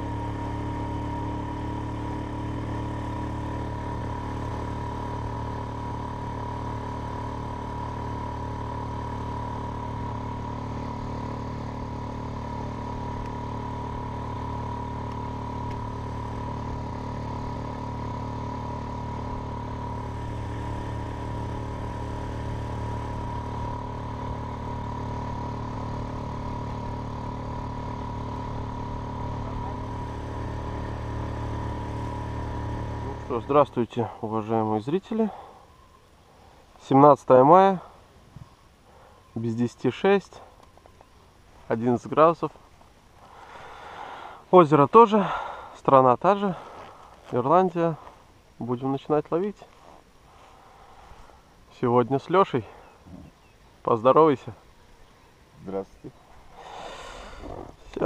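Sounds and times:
outboard motor running: 0.0 - 36.7, 37.6 - 39.4, 43.2 - 44.4, 45.0 - 45.8, 46.5 - 48.3, 50.0 - 51.4, 56.2 - 58.0.

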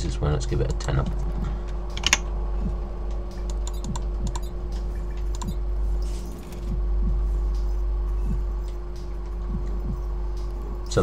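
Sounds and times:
low electrical hum: 0.0 - 11.0
keyboard and mouse clicking: 1.9 - 2.2, 3.4 - 4.5, 5.2 - 5.6.

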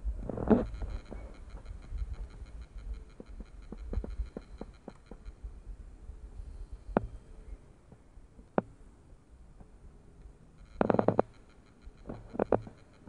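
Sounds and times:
wind rumbling on microphone: 0.0 - 7.7.

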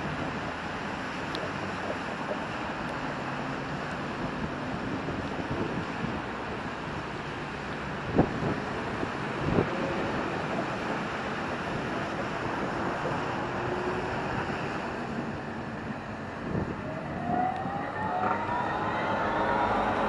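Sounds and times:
street traffic: 0.0 - 20.0
wind: 0.0 - 20.0
tram motor electric whine: 15.1 - 20.0.

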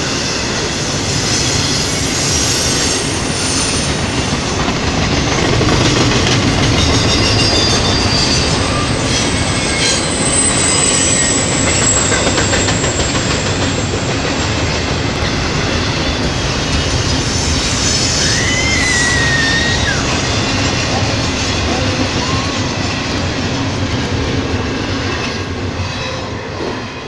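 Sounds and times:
train rumbling and clattering on rails: 0.0 - 27.0
high wheel squeal: 6.8 - 14.2, 15.2 - 22.9.

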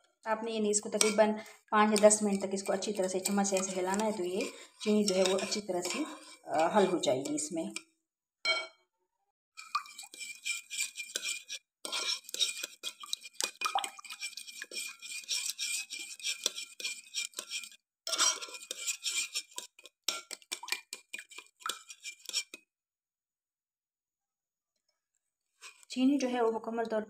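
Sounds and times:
metal spoon stirring in glass bowl: 0.7 - 7.8, 9.6 - 22.6.

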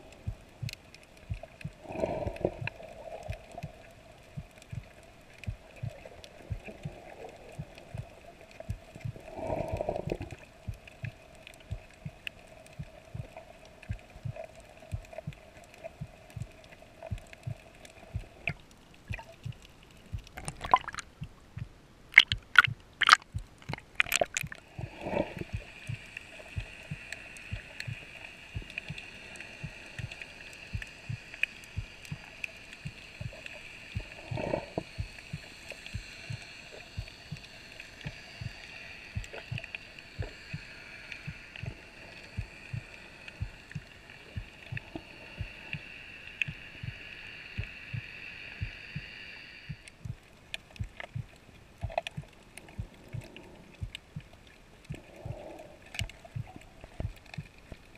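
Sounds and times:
soft regular clicks: 0.0 - 57.9
water gurgle: 0.0 - 57.9
water splashing: 15.2 - 46.7.

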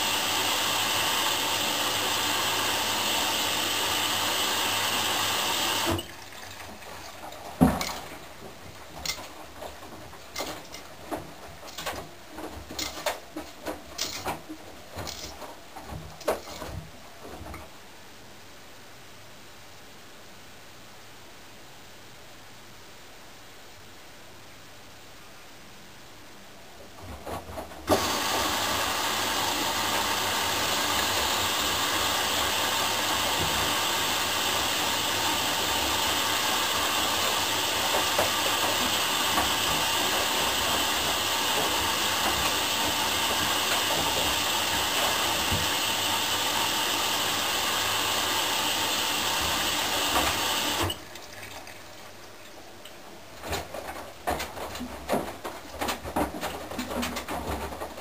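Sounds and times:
washing machine drum turning: 0.0 - 17.7, 27.8 - 51.0
water filling washing machine: 0.0 - 17.7, 27.0 - 58.0
wet laundry sloshing: 6.0 - 17.5.

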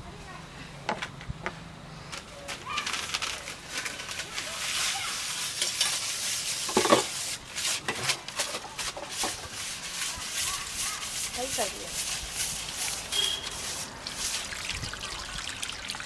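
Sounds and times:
twigs crackling as they burn: 2.1 - 14.6.

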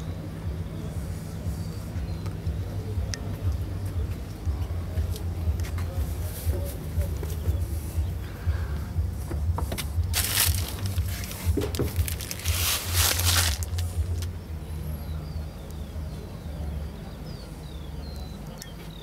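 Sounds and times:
low uneven rumble: 0.0 - 19.0
plastic wrapping crinkling: 10.1 - 14.3.

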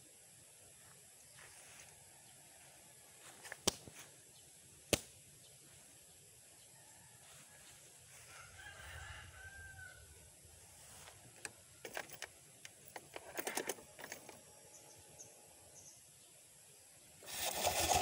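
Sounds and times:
rooster crowing: 6.8 - 10.2
sharp clicks and knocks: 11.4 - 14.4.

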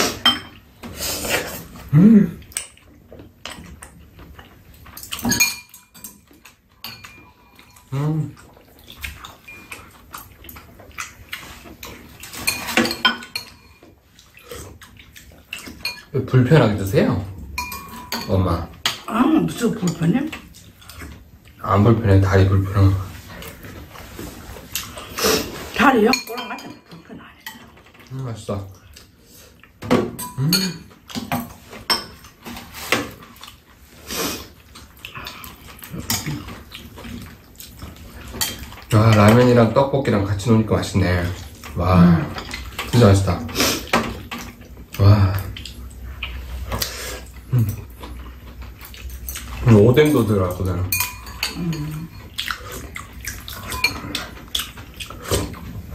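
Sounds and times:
noodles slurped and chewed: 32.6 - 39.4, 51.5 - 55.9
utensils clicking against ceramic bowls: 48.9 - 52.6, 53.4 - 54.8
eating noodles: 51.3 - 55.8.

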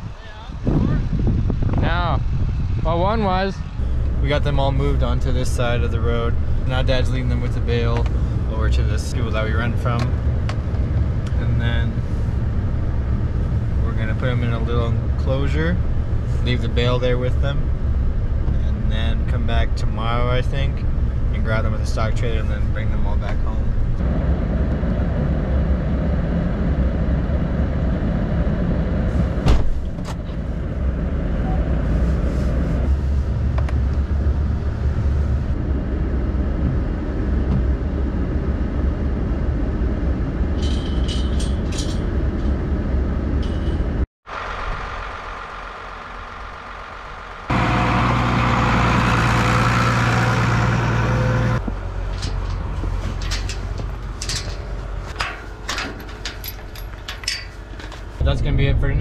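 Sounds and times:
vehicle engine idling: 44.2 - 58.3
metallic clinks: 52.0 - 58.0.

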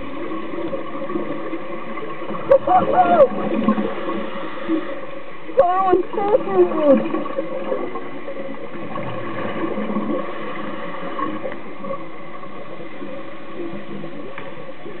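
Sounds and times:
faint steady hum: 0.0 - 15.0
muffled underwater hiss: 0.0 - 15.0.

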